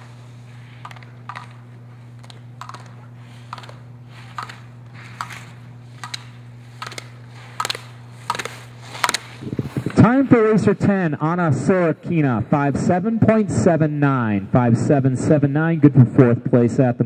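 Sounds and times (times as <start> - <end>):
skis turning sharply: 0.0 - 10.8
steady low hum: 0.0 - 17.0.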